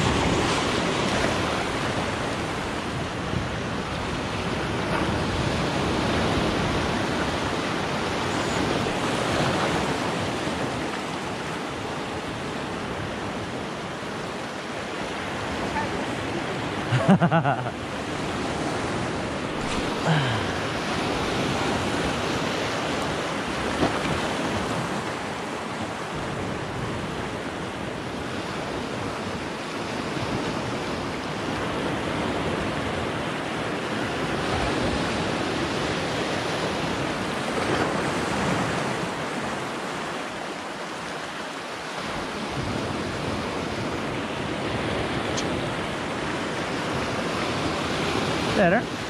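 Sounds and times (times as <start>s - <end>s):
small waves breaking on rocks: 17.9s - 27.6s.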